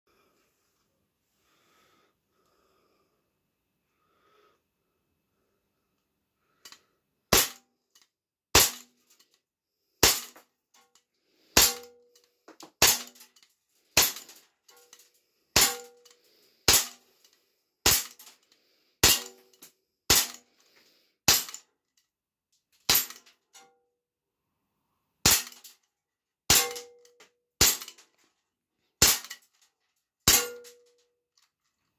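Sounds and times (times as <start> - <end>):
air pistol shots cracking: 8.6 - 8.8, 10.0 - 10.3.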